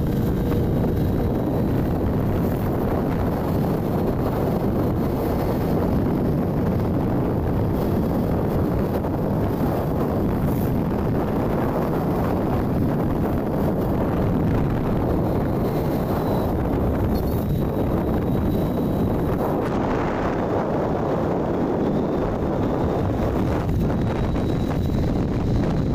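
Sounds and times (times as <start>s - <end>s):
road noise: 0.0s - 25.9s
vehicle engine: 0.0s - 25.9s
wind buffeting microphone: 0.0s - 25.9s.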